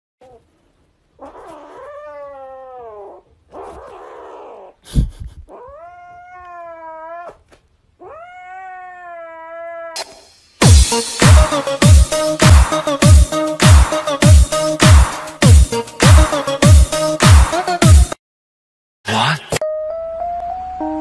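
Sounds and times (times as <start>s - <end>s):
kitten yowling: 1.2s - 4.8s, 5.5s - 7.4s, 8.0s - 10.1s.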